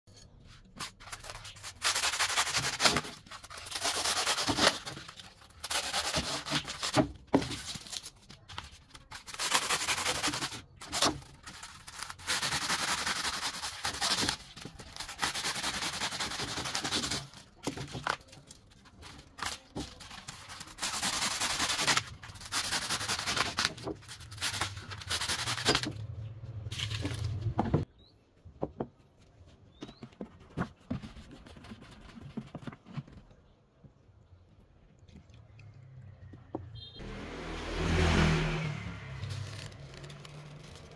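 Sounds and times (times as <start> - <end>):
hacksaw cutting foam: 1.3 - 7.6, 9.1 - 17.9, 19.5 - 26.0.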